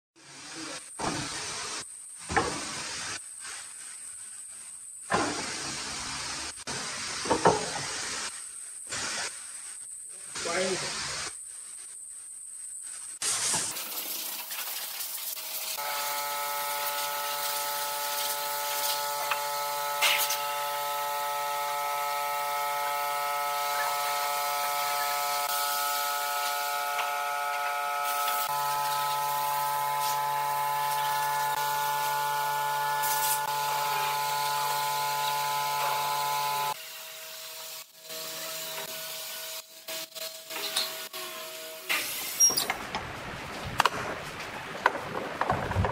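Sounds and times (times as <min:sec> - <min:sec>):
wooden boards shifting: 0:43.7 - 0:45.9.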